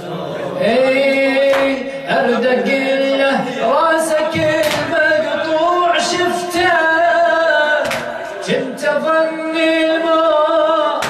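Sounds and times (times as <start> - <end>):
men chanting: 0.0 - 11.0
hands slapping chests: 7.8 - 8.1.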